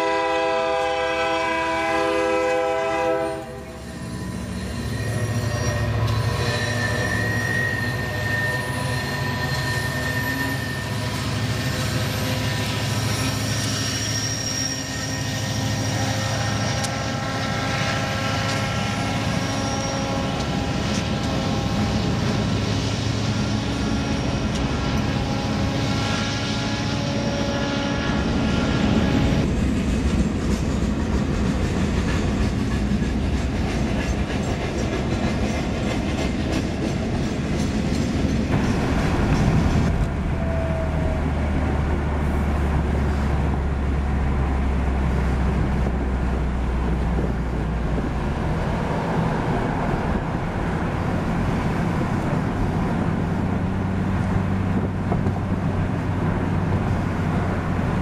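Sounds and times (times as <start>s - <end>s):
diesel locomotive rumble: 0.0s - 58.0s
metallic wheel squeals: 3.6s - 21.9s
train wheel clatter: 29.0s - 40.2s.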